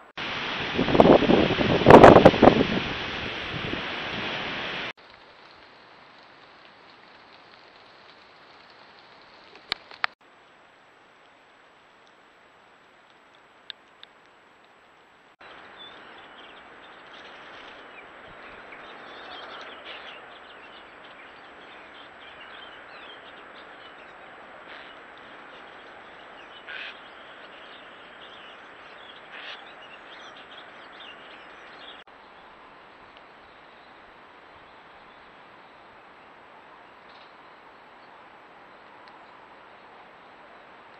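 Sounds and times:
faint hiss: 0:00.0 - 0:40.9
wind and hail rushing: 0:00.0 - 0:40.9
small birds chirping: 0:15.4 - 0:32.5.

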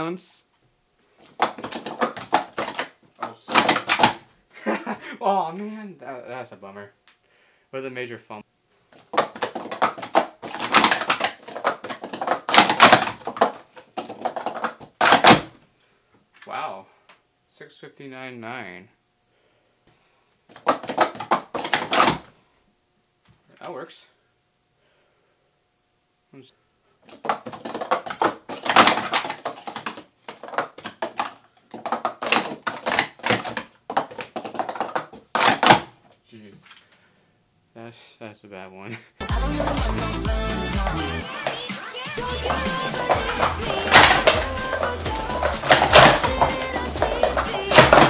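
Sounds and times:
plastic cups clattering: 0:01.2 - 0:04.2, 0:09.0 - 0:15.5, 0:20.5 - 0:22.3, 0:27.1 - 0:35.9, 0:42.2 - 0:48.0.

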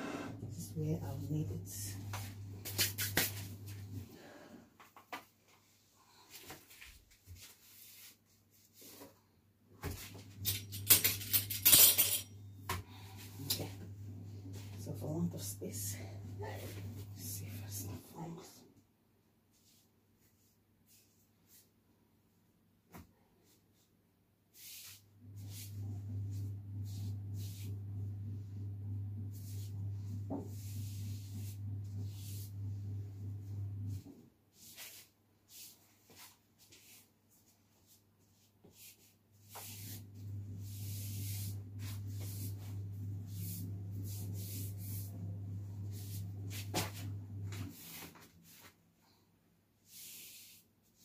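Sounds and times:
low steady hum: 0:00.0 - 0:04.2, 0:10.0 - 0:18.8, 0:25.2 - 0:34.1, 0:39.4 - 0:48.7
hands rubbing fondant: 0:29.3 - 0:32.6, 0:34.6 - 0:45.2.

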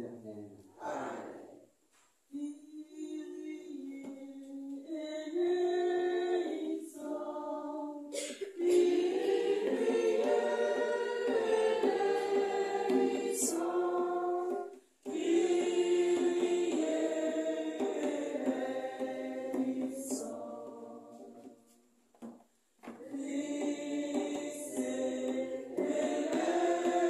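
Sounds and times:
group chanting in unison: 0:00.7 - 0:01.7, 0:05.4 - 0:21.6, 0:23.0 - 0:27.0.

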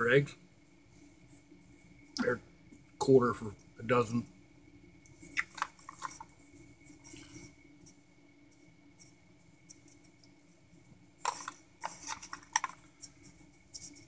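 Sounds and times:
faint steady hum: 0:00.0 - 0:14.0
small objects clicking and rustling: 0:05.1 - 0:08.0, 0:11.2 - 0:14.0.

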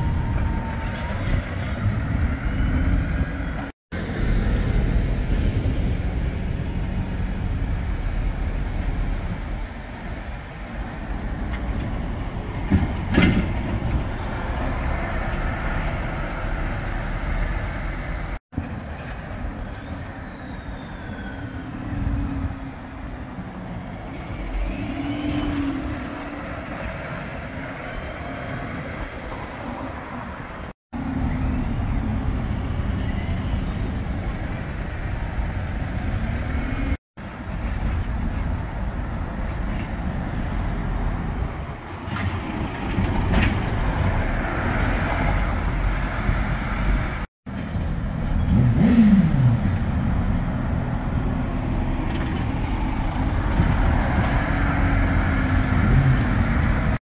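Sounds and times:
bus engines rumbling: 0:00.0 - 0:57.0
traffic noise: 0:00.0 - 0:57.0.

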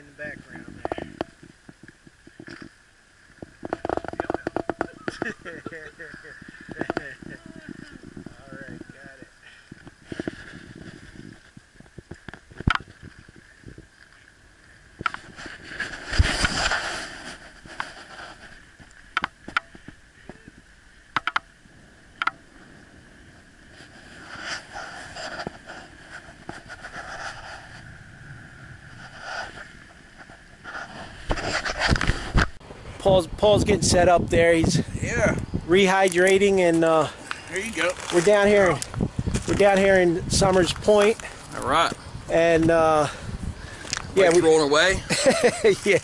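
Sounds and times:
trike rolling rush: 0:03.4 - 0:13.9, 0:15.0 - 0:20.7.

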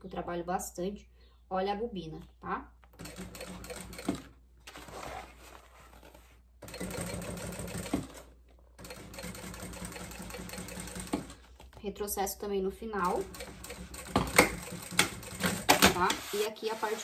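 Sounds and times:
sewing machine stitching: 0:06.6 - 0:08.2, 0:08.8 - 0:11.4.

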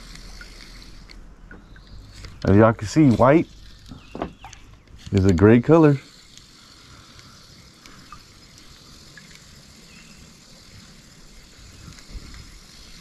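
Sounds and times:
low uneven rumble: 0:00.0 - 0:13.0
steady high hiss: 0:00.0 - 0:13.0.

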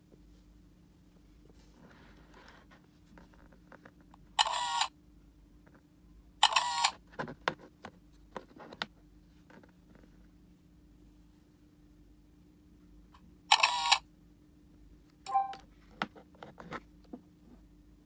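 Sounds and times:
camera shutter sound effects: 0:04.4 - 0:04.9, 0:06.4 - 0:07.0, 0:13.5 - 0:14.0.

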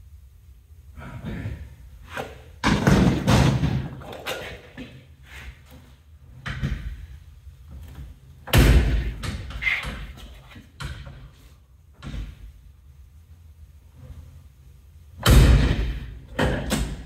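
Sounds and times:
metal door slamming: 0:08.5 - 0:10.1, 0:15.2 - 0:17.0.

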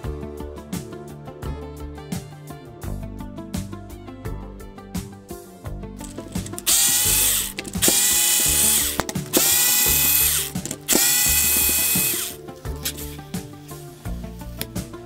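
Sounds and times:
background music: 0:00.0 - 0:15.0
cordless screwdriver whine: 0:06.0 - 0:13.2.

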